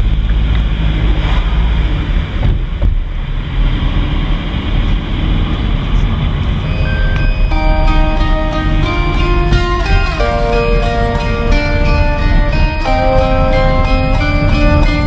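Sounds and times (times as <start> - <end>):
car engine and tyre rumble: 0.0 - 15.0
guitar music: 6.7 - 15.0.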